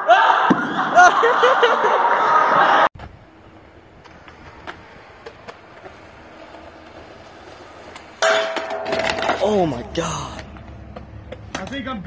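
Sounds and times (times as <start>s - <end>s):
young people shouting and laughing: 0.0s - 2.9s.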